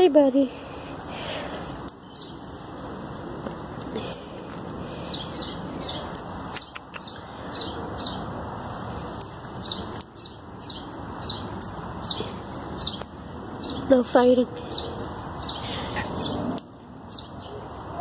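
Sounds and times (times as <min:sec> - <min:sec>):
outdoor background noise: 0:00.0 - 0:18.0
bird chirping: 0:05.0 - 0:08.3, 0:09.6 - 0:13.9, 0:14.6 - 0:17.6.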